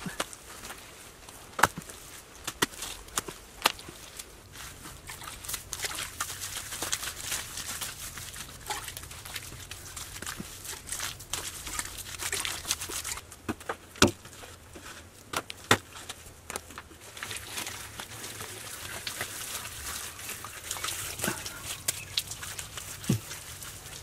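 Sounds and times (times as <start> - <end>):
hands scraping wet plaster: 17.1 - 24.0.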